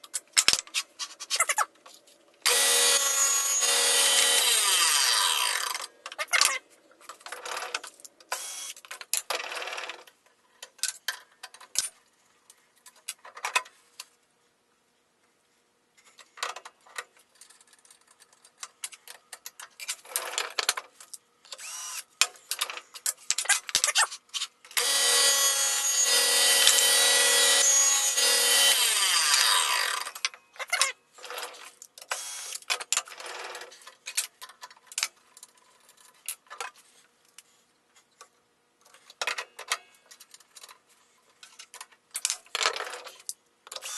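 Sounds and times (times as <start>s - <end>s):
power tool whining: 2.5s - 5.8s, 24.8s - 30.1s.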